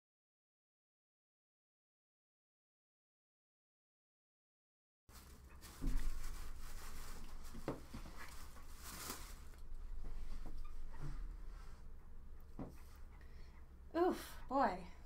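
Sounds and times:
rustling and scratching: 5.1s - 13.8s
low steady hum: 5.1s - 15.0s
dull thump: 5.7s - 6.8s.

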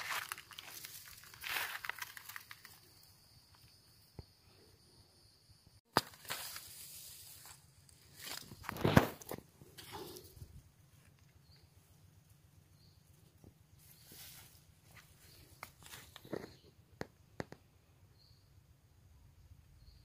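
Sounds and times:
grass and dry leaves rustling: 0.0s - 3.2s, 5.9s - 16.8s.

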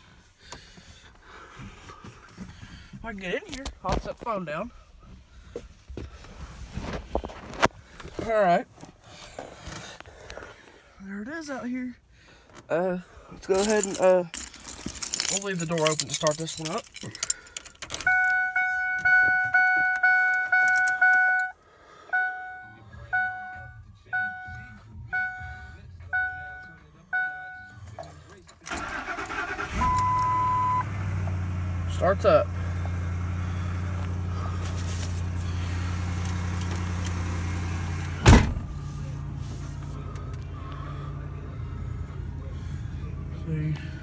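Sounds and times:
keys jingling: 13.4s - 18.4s, 27.8s - 29.5s
car warning chime dinging: 17.9s - 28.0s, 28.8s - 30.9s
truck engine idling: 28.8s - 44.0s
truck door shutting: 38.1s - 38.7s.

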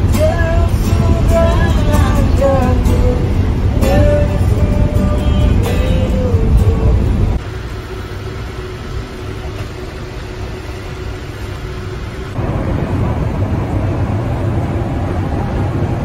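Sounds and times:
low rumble of ship: 0.0s - 16.0s
ship engines humming: 0.0s - 16.0s.

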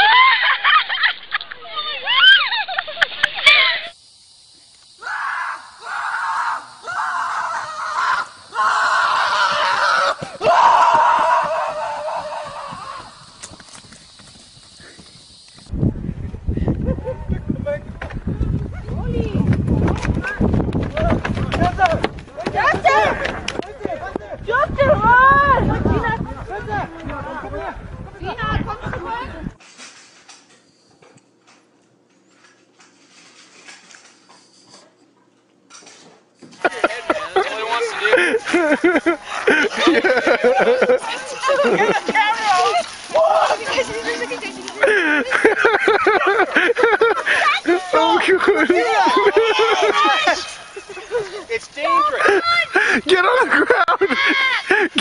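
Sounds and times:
loud screams: 0.0s - 2.7s, 3.4s - 4.0s, 5.0s - 13.4s, 39.5s - 45.4s, 47.2s - 50.7s.

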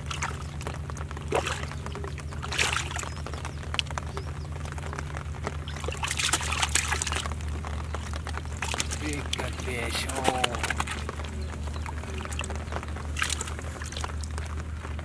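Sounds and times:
steady low hum: 0.0s - 15.0s
hand splashing muddy water: 2.4s - 3.1s, 5.8s - 7.4s, 12.0s - 14.4s.

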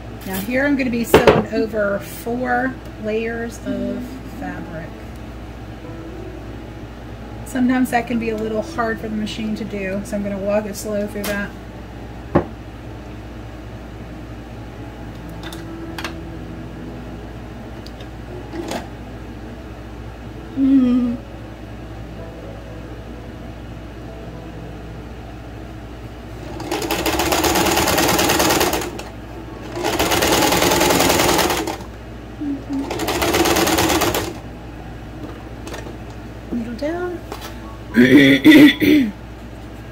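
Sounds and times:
sewing machine stitching: 26.4s - 29.1s, 29.7s - 31.9s, 32.7s - 34.4s.

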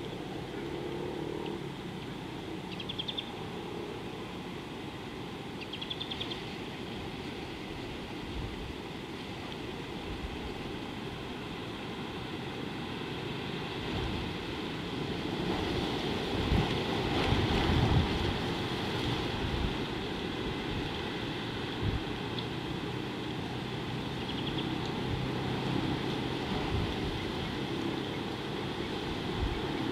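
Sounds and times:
wind buffeting microphone: 13.8s - 22.3s, 24.7s - 29.9s.

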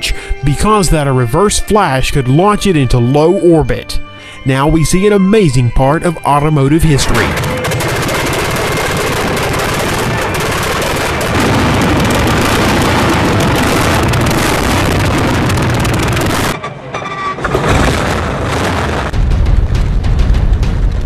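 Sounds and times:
loud engine firing strokes: 6.9s - 16.6s
quieter engine running: 7.0s - 16.6s.

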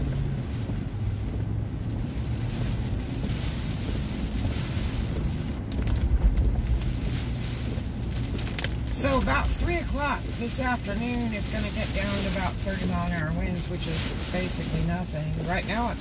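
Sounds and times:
engine and road rumble: 0.0s - 16.0s
rain on windshield: 0.0s - 16.0s
wipers sweeping: 6.6s - 16.0s.

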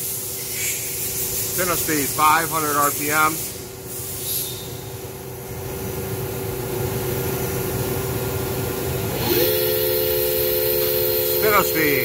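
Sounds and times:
lathe spindle humming: 7.5s - 12.0s
thin high whine: 9.1s - 12.0s.

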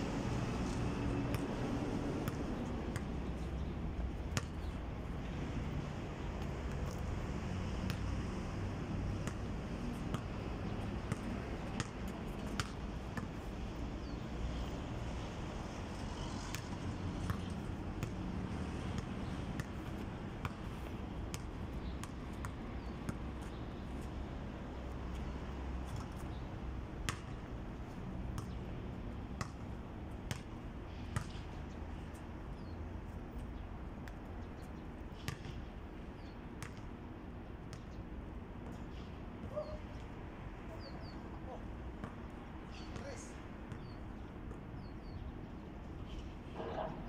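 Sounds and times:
ball striking hoop and backboard: 2.2s - 3.5s, 4.2s - 4.7s, 7.9s - 8.1s, 9.2s - 13.4s, 16.5s - 18.2s, 18.9s - 23.2s, 27.0s - 27.4s, 28.3s - 28.6s, 29.4s - 31.5s, 35.2s - 35.6s, 36.6s - 36.8s
basketball bouncing on concrete: 2.2s - 4.8s, 7.9s - 8.1s, 9.1s - 13.4s, 16.5s - 18.2s, 18.9s - 23.6s, 25.9s - 27.4s, 28.3s - 28.7s, 29.4s - 31.5s, 35.2s - 35.6s, 36.2s - 36.9s, 37.7s - 37.9s, 42.0s - 45.2s.

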